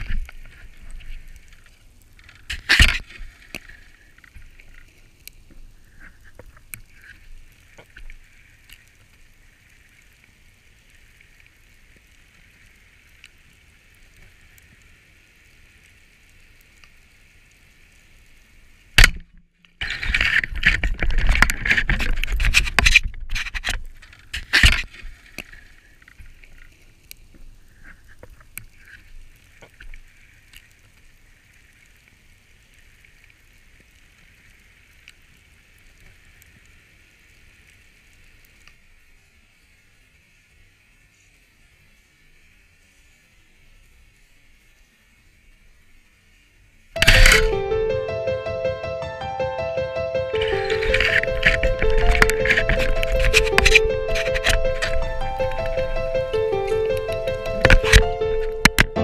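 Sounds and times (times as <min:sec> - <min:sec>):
faint steady hiss: 0:00.0 - 0:59.0.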